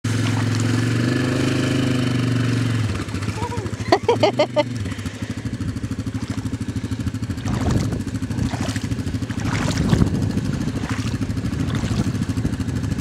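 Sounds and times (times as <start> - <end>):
atv engine throbbing: 0.0 - 13.0
water splashing: 0.1 - 1.8, 5.9 - 12.4.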